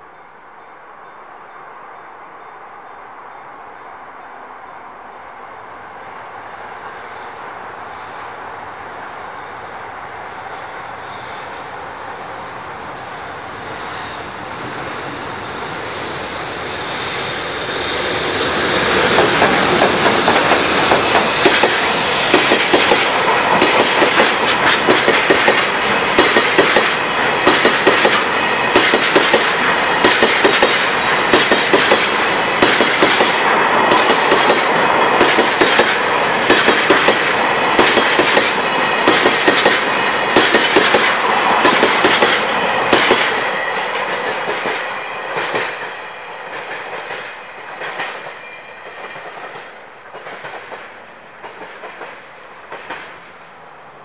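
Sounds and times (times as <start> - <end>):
freight train wheels clacking: 14.1 - 53.3.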